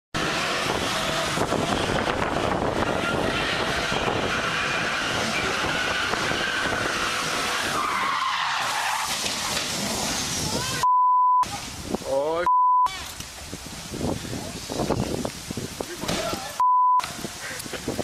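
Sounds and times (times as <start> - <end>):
car engine running hard: 0.2 - 10.8
tyres squealing: 2.8 - 10.8.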